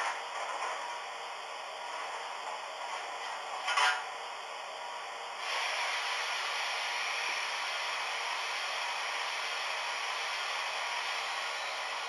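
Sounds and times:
model locomotive steam hiss: 5.4 - 12.0.

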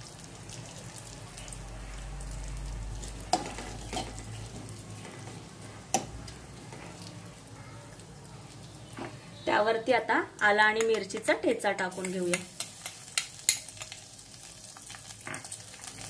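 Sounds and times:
seeds crackling and sizzling in oil: 0.0 - 16.0
steel spoon stirring: 12.0 - 14.0.

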